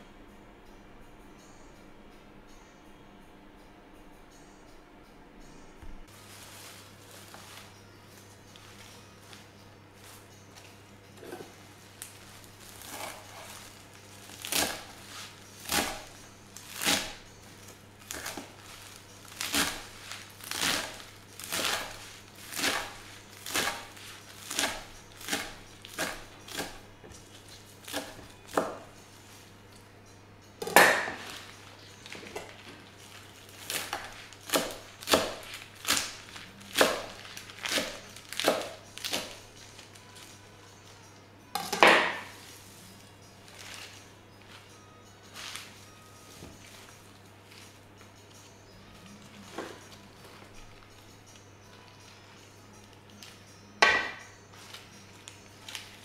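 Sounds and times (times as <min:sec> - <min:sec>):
knife chopping herbs on wooden board: 0:14.3 - 0:16.2, 0:19.4 - 0:27.2, 0:27.8 - 0:28.9, 0:33.6 - 0:39.4, 0:53.8 - 0:54.2.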